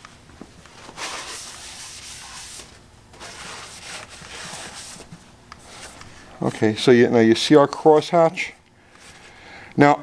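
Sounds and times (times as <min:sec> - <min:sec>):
paper towel rubbing metal: 0:01.0 - 0:06.7.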